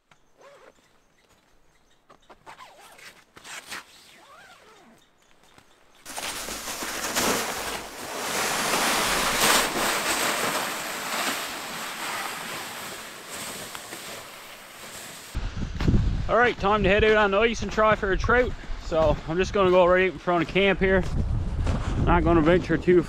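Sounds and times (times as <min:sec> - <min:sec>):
wind gusting across microphone: 0:15.3 - 0:23.0.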